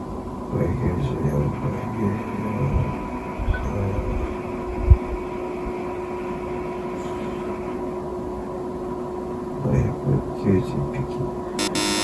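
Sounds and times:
mechanical room hum with tones: 0.0 - 12.0.

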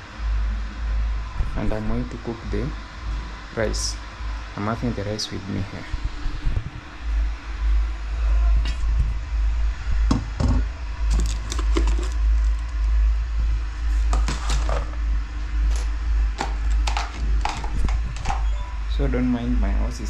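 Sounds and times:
steady low rumble: 0.0 - 20.0
pots and containers clinking: 10.4 - 12.6, 14.1 - 14.9, 16.4 - 18.5.

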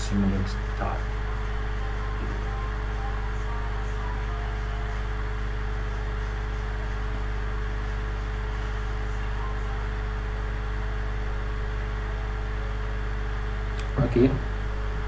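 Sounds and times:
constant high tone: 0.0 - 7.0
low hum: 0.0 - 15.0.

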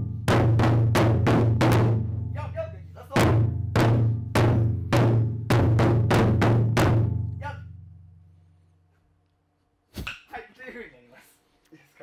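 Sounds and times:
deep booming drum strokes: 0.0 - 7.9.

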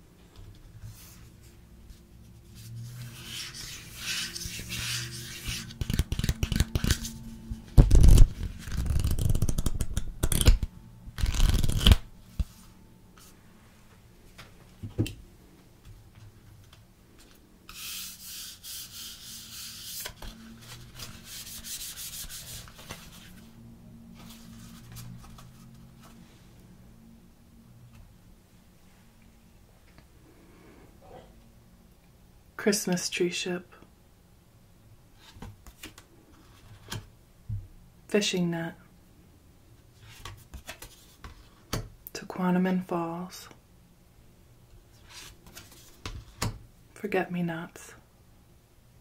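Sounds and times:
cards rubbing and sliding: 2.4 - 13.3, 17.7 - 23.4, 45.0 - 46.5
cards being shuffled: 2.6 - 12.6, 19.6 - 23.4, 24.2 - 26.2, 35.2 - 37.0, 40.0 - 41.8, 45.0 - 46.5.

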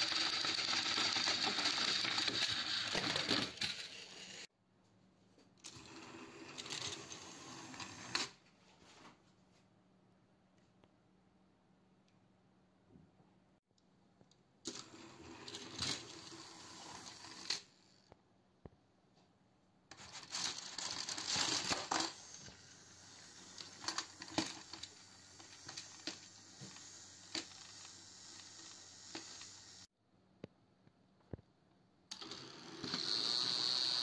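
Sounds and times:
small toy motors whirring: 0.0 - 4.5, 5.6 - 8.4, 14.7 - 18.1, 19.9 - 29.9, 32.1 - 34.0.

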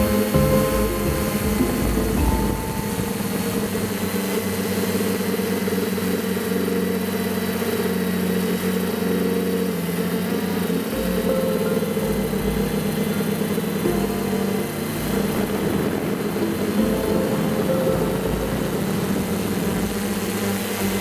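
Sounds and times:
drone propellers humming: 0.0 - 21.0.

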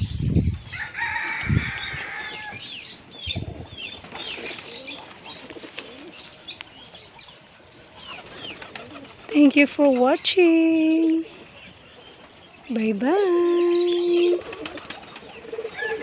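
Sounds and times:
soft pigeon cooing: 3.2 - 9.4, 13.6 - 16.0
pigeon wings flapping: 8.1 - 9.4, 14.2 - 16.0.

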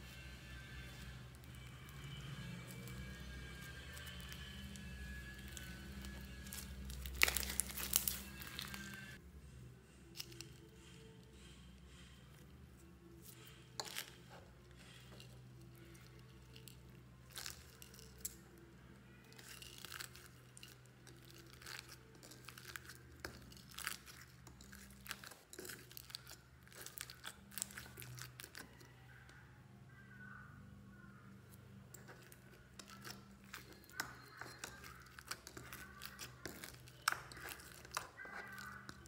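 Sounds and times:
slime crackling and popping: 0.5 - 9.2, 19.3 - 28.8, 32.0 - 39.0.

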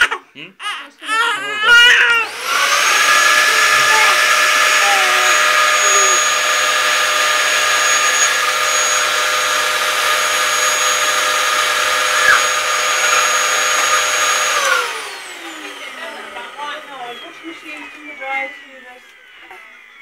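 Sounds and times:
vacuum cleaner running: 1.4 - 20.0
motor spinning down: 1.6 - 20.0.

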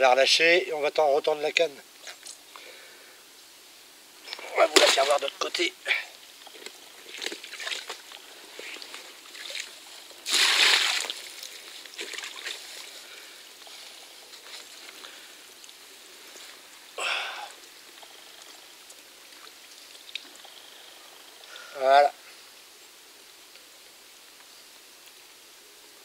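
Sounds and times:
water pouring and splashing: 4.2 - 15.8.

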